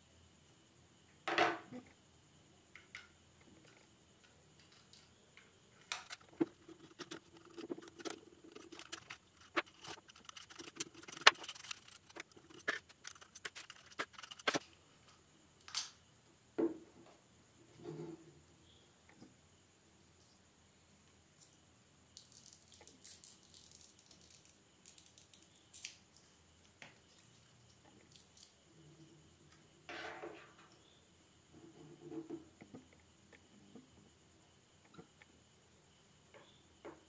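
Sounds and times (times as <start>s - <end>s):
plastic parts clicking and tapping: 2.8s - 14.7s.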